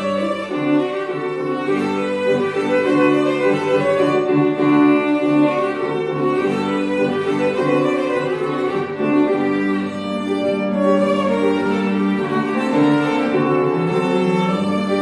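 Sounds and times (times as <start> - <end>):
piano chords: 0.0 - 15.0
violin melody: 0.0 - 15.0.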